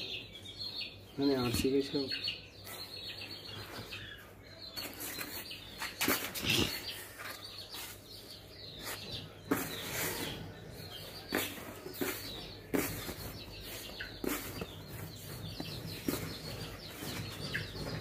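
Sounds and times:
hands scraping through sawdust: 0:11.2 - 0:14.9.

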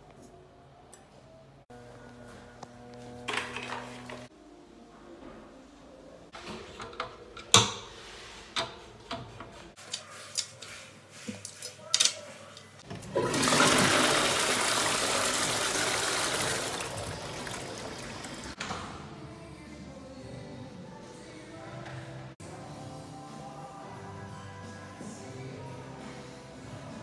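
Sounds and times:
toilet flushing: 0:03.3 - 0:04.3, 0:12.9 - 0:18.6.

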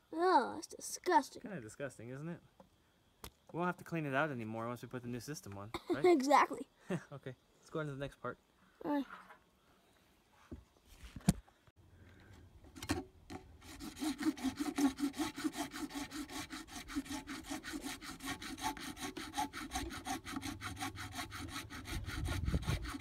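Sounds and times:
saw cutting plastic pipe: 0:12.8 - 0:23.0.

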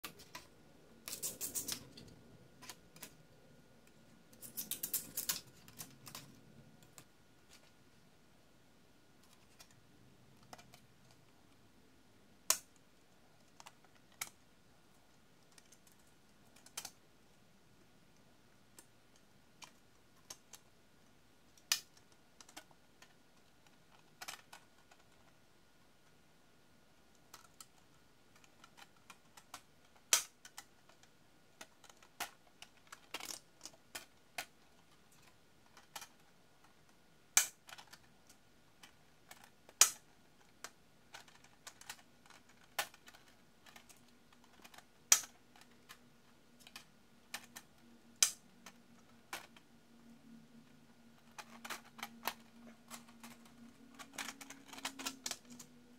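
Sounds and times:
plastic parts clicking and snapping: 0:00.0 - 0:03.2, 0:03.8 - 0:07.7, 0:10.4 - 0:11.4, 0:12.4 - 0:12.8, 0:13.4 - 0:14.4, 0:15.4 - 0:17.0, 0:18.7 - 0:20.7, 0:21.5 - 0:25.4, 0:27.1 - 0:50.0, 0:50.6 - 0:55.9.

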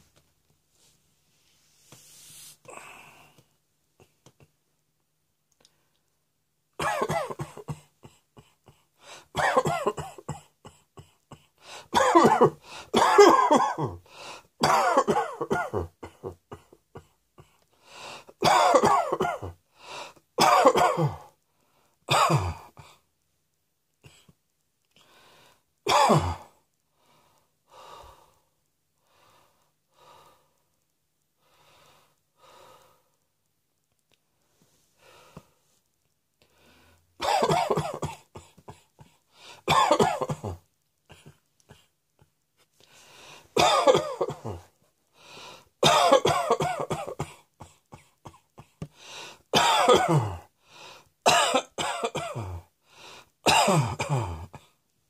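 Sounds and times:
person coughing: 0:06.8 - 0:14.0, 0:14.6 - 0:17.6, 0:18.4 - 0:19.6, 0:20.4 - 0:21.3, 0:22.1 - 0:23.0, 0:25.9 - 0:26.6, 0:37.2 - 0:41.9, 0:43.6 - 0:44.7, 0:45.8 - 0:50.5, 0:51.2 - 0:52.7, 0:53.4 - 0:54.8.

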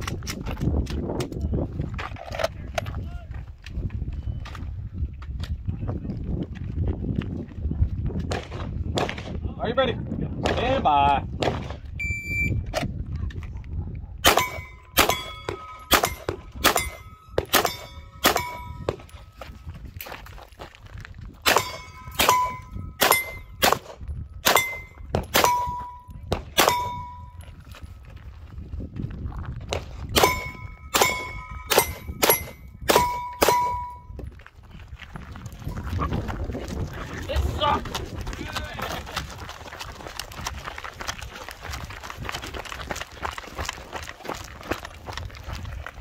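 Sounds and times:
gunshots: 0:08.3 - 0:09.4, 0:11.4 - 0:11.8, 0:14.2 - 0:19.1, 0:21.5 - 0:27.2, 0:29.7 - 0:34.0
steel target clanging: 0:14.2 - 0:19.2, 0:21.5 - 0:23.6, 0:24.5 - 0:27.3, 0:30.2 - 0:34.1.

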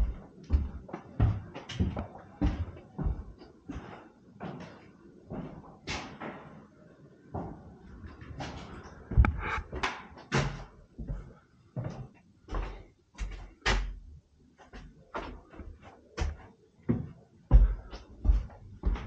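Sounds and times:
footsteps on wooden floorboards: 0:00.0 - 0:06.5, 0:10.4 - 0:14.0, 0:14.6 - 0:19.0.

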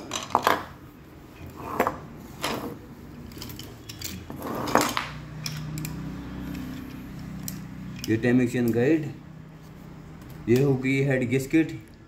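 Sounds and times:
metal parts and tools clinking: 0:00.0 - 0:09.0.

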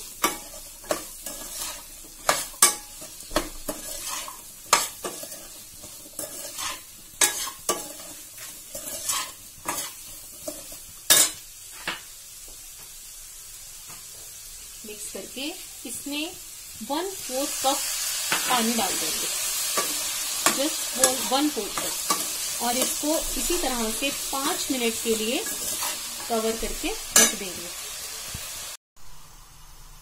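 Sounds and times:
hot oil sizzling: 0:00.0 - 0:30.0
ladle clinking and scraping pan: 0:00.1 - 0:11.4, 0:25.4 - 0:26.4.

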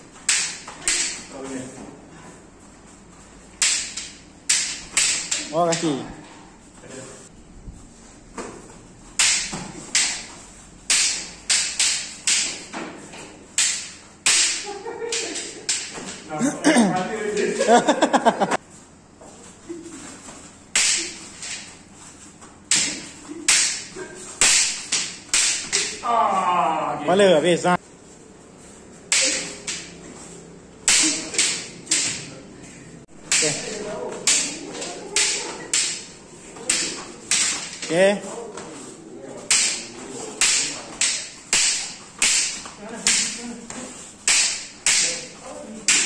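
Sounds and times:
wooden swords striking: 0:00.1 - 0:01.4, 0:03.5 - 0:06.1, 0:08.4 - 0:16.3, 0:20.7 - 0:21.8, 0:22.7 - 0:26.6, 0:29.0 - 0:30.2, 0:30.8 - 0:32.4, 0:33.2 - 0:38.8, 0:39.4 - 0:46.0.

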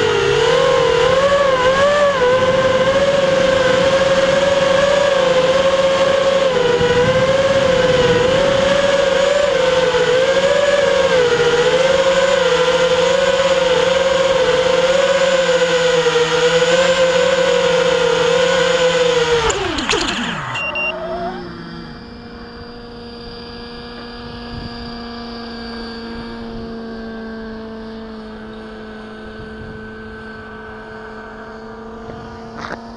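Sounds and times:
motors spinning down: 0:00.0 - 0:32.9
quadcopter motors whining: 0:00.0 - 0:32.9
faint steady whine: 0:17.0 - 0:32.9.

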